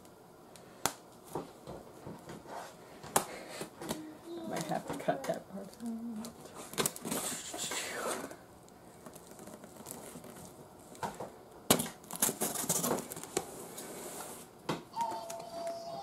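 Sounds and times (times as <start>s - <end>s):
packing tape tearing: 9.0s - 10.6s, 11.7s - 13.4s
cardboard rustling and scraping: 9.1s - 10.6s, 12.1s - 14.5s.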